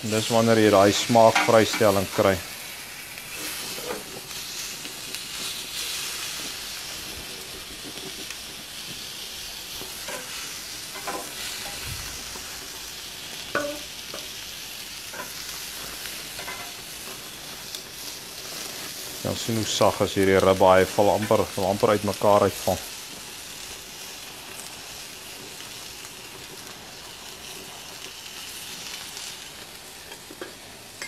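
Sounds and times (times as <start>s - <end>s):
meat sizzling on a grill: 0.0s - 31.0s
tongs tapping grill grate: 13.5s - 14.3s.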